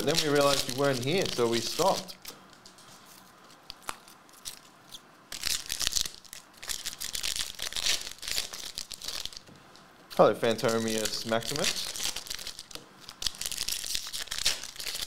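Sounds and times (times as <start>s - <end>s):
foil wrapper tearing and crinkling: 0.0s - 2.3s, 5.3s - 9.4s, 10.5s - 15.0s.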